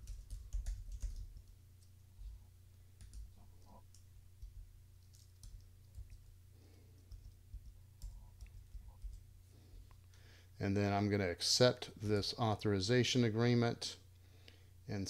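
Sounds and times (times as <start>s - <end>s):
keyboard typing clicks: 0.0s - 1.6s, 3.0s - 3.3s
low steady hum: 0.0s - 15.0s.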